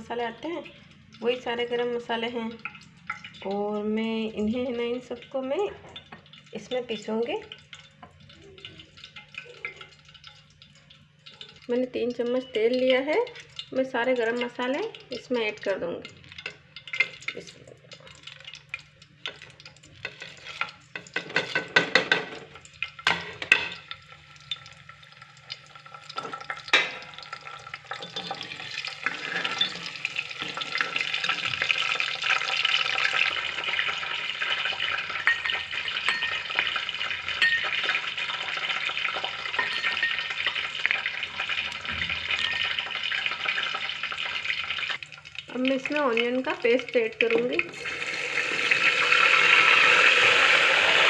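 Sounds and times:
spices sizzling in hot oil: 0:00.0 - 0:51.0
ladle scraping a pot: 0:19.4 - 0:22.0, 0:27.9 - 0:31.8.

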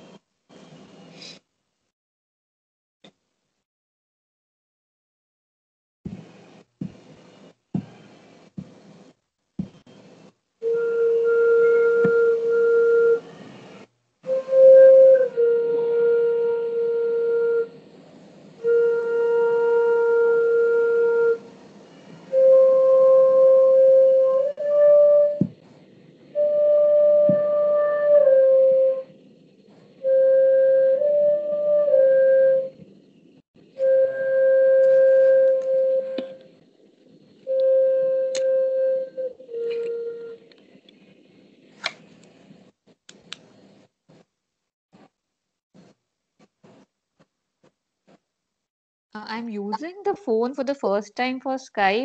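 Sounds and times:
slow flute music: 0:10.6 - 0:32.9, 0:33.7 - 0:36.5, 0:37.4 - 0:40.5.

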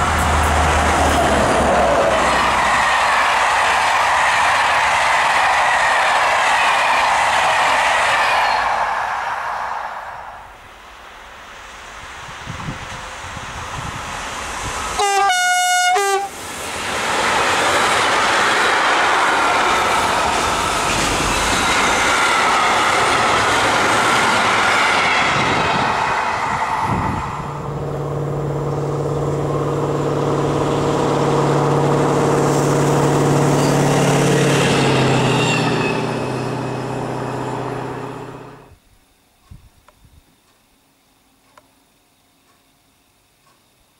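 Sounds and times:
freight train wheels on rails: 0:00.0 - 0:38.8
locomotive horn: 0:15.0 - 0:16.4.

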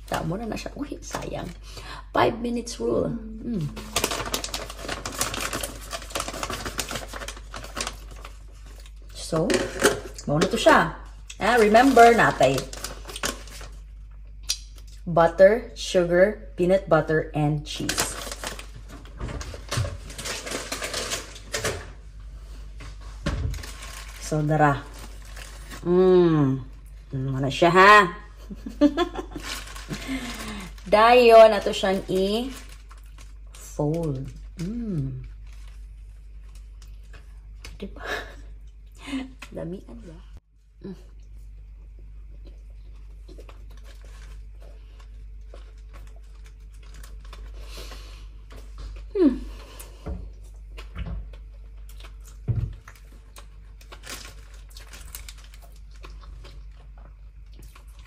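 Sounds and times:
paper packet crinkling: 0:03.6 - 0:14.0, 0:17.7 - 0:21.9, 0:22.8 - 0:26.0, 0:28.6 - 0:37.6, 0:43.0 - 0:48.0, 0:51.6 - 0:56.8
person chewing bread: 0:34.4 - 0:37.9, 0:41.0 - 0:58.0.

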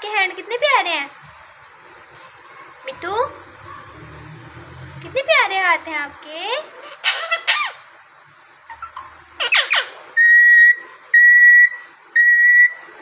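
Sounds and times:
parakeet whistling notes: 0:08.8 - 0:12.8.

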